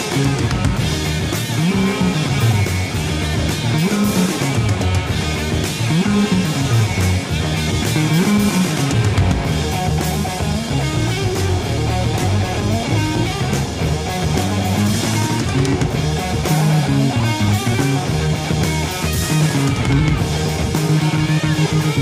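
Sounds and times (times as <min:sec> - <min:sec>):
heavy metal band playing: 0:00.0 - 0:22.0.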